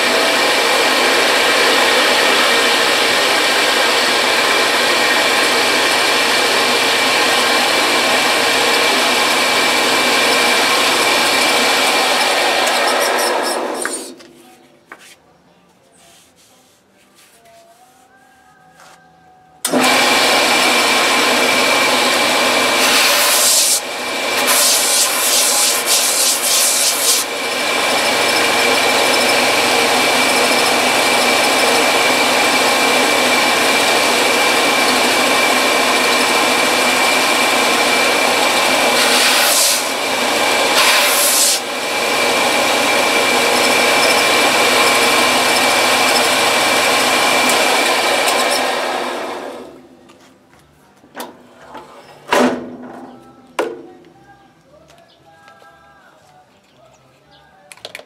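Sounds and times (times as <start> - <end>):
belt sander grinding wood: 0.0 - 14.2, 19.7 - 49.7.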